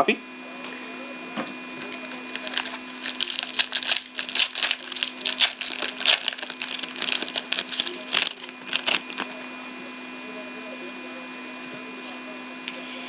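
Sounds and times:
card pack wrapper crinkling and tearing: 1.6 - 10.2.

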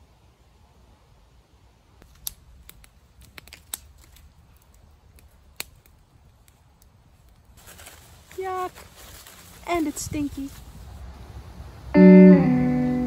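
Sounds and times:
twig fire crackling: 1.9 - 11.2.

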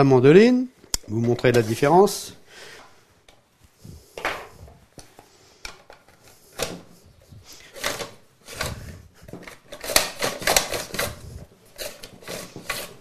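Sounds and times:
carrots scraping on a grater: 9.7 - 13.0.

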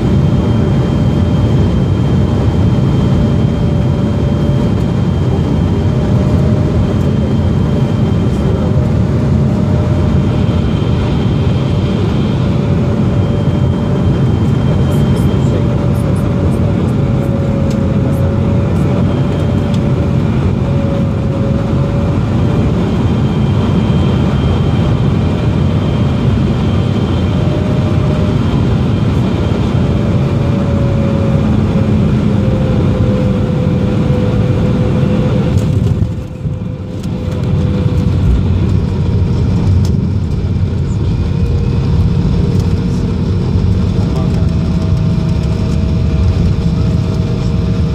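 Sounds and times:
jet engine and airflow rush: 0.0 - 47.9.

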